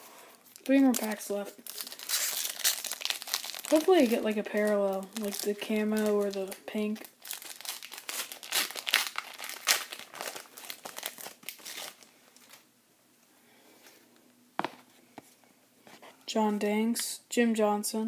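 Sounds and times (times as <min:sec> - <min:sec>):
plastic wrapper tearing and crinkling: 0:00.5 - 0:12.7.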